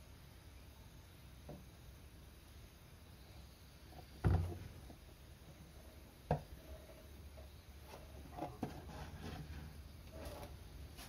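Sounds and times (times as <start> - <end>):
dull thumps: 4.1 - 5.0.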